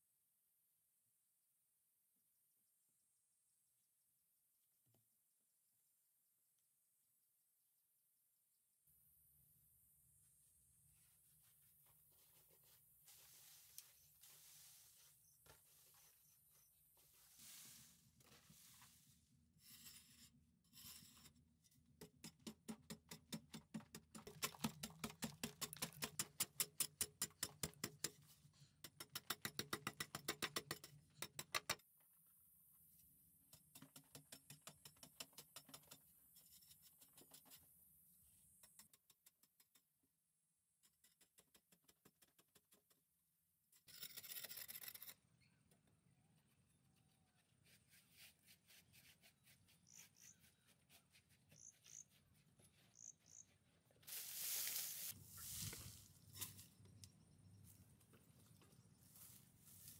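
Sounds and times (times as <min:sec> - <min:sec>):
hand tool scraping earth wall: 0:47.0 - 0:56.8, 0:58.5 - 0:59.9.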